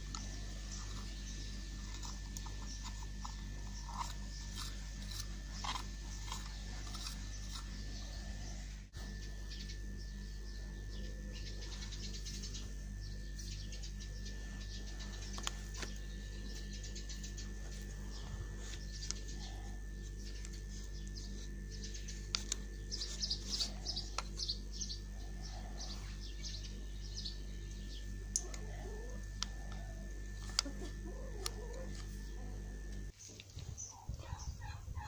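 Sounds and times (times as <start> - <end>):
steady hum: 0.0 - 35.0.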